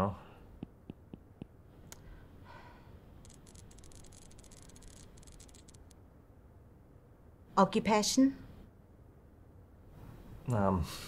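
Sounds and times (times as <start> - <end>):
soft clicks: 3.2 - 6.0.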